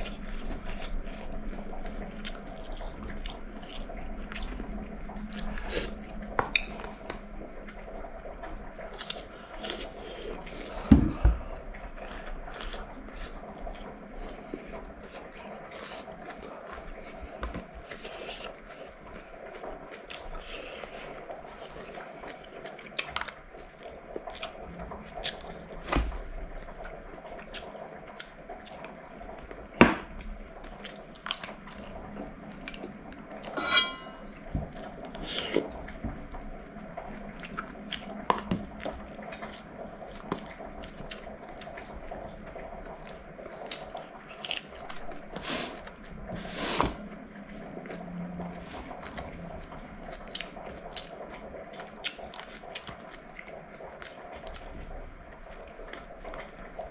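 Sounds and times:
steady low hum: 31.6s - 50.8s.

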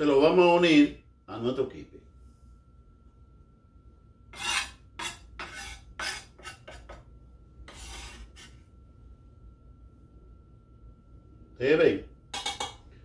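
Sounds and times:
knife scraping wooden cutting board: 4.4s - 7.0s, 7.7s - 8.6s.

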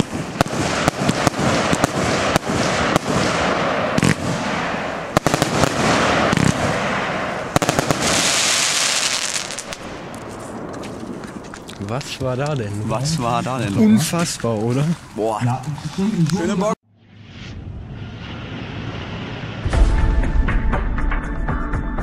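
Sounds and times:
firework launch shots and bursts: 0.0s - 11.5s
firework crackle: 0.0s - 13.6s.

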